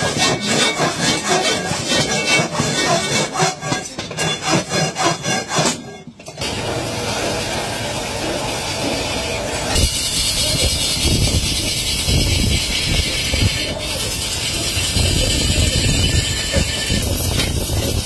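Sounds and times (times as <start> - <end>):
pan turning on a lathe: 6.4 - 18.0.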